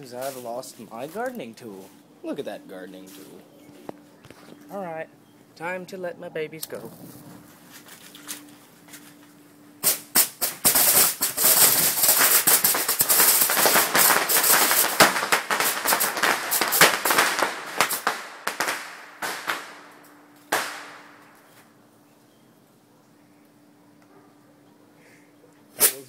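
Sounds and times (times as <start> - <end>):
bottle rockets popping and hissing: 9.8 - 21.4, 25.7 - 26.0.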